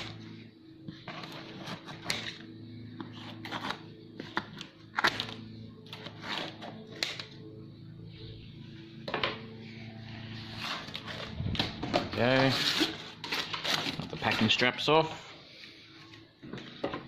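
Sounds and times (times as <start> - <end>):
steady low hum: 0.0 - 16.9.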